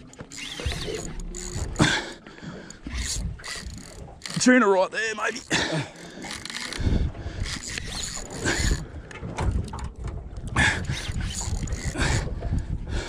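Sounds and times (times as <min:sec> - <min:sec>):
water slapping boat hull: 0:00.0 - 0:13.0
wind rumbling on microphone: 0:00.5 - 0:04.3, 0:06.7 - 0:13.0.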